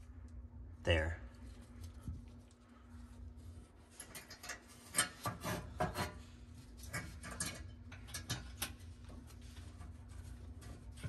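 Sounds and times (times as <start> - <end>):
small metallic clicks and scrapes: 3.9 - 6.2, 6.8 - 9.9.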